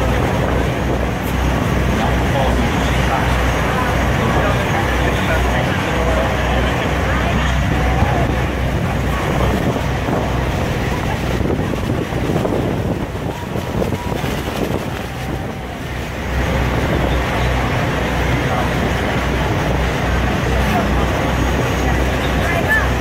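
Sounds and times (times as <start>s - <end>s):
boat engine rumble: 0.0s - 23.0s
rushing churning water: 0.0s - 23.0s
wind buffeting microphone: 0.0s - 23.0s.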